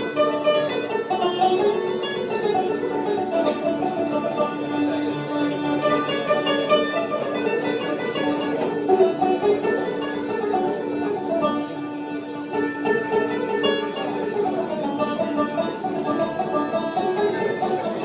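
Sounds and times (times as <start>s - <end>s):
plucked string instruments: 0.0s - 18.0s
violin: 0.0s - 18.0s.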